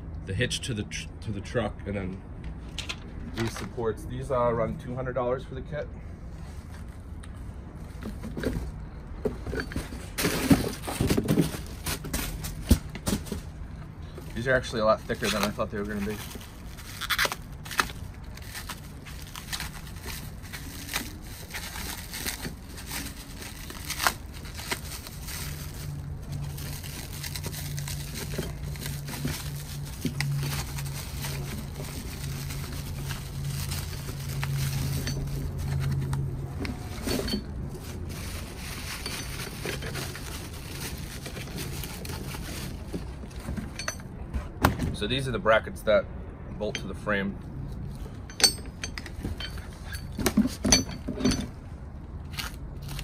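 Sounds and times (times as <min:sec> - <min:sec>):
plastic wrapping crinkling and tearing: 0:14.3 - 0:37.1, 0:37.7 - 0:43.0
metal parts clicking and knocking: 0:43.4 - 0:44.1, 0:48.2 - 0:51.6.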